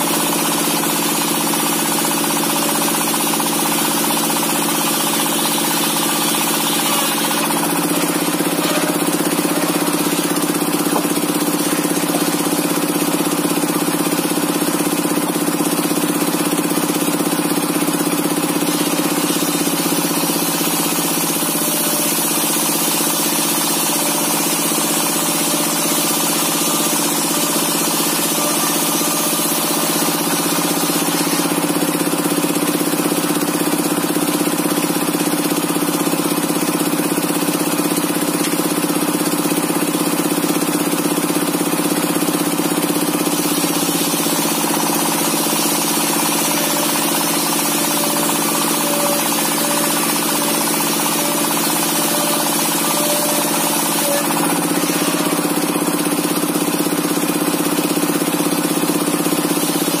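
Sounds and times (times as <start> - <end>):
diesel engine running: 0.1 - 25.6, 27.0 - 60.0.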